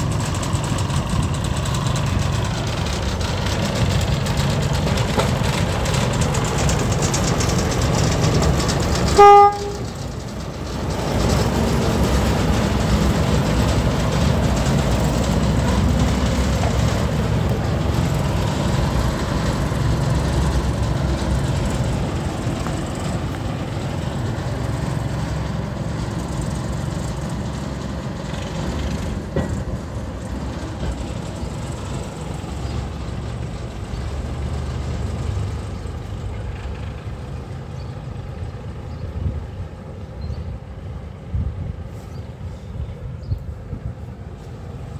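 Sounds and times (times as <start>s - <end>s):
diesel locomotive engine rumble: 0.0s - 44.9s
locomotive horn toot: 9.0s - 10.1s.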